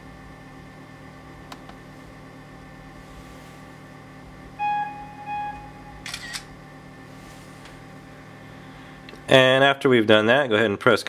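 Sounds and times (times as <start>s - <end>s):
electronic beeps: 4.6s - 6.4s
camera shutter click: 6.0s - 6.5s.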